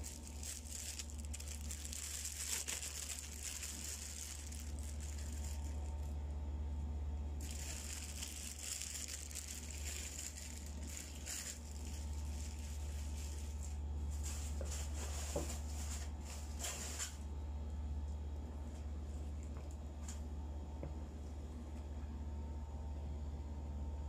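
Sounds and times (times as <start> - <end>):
foil tray rustling: 0.0 - 6.1, 7.4 - 17.2
plastic glove crinkling: 0.0 - 6.2, 7.4 - 17.2
steady low hum: 0.0 - 24.0.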